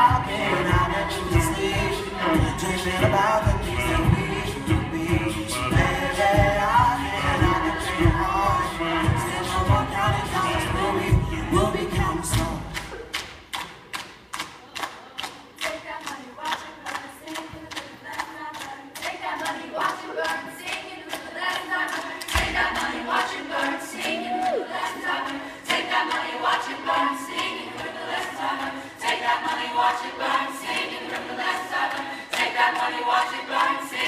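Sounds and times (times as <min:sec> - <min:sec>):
a cappella group singing: 0:00.0 - 0:13.2, 0:14.8 - 0:34.0.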